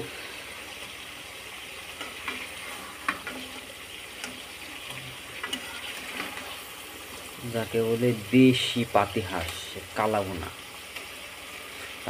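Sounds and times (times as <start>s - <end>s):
food sizzling in oil: 0.0s - 12.0s
spatula scraping a pan: 1.9s - 7.3s.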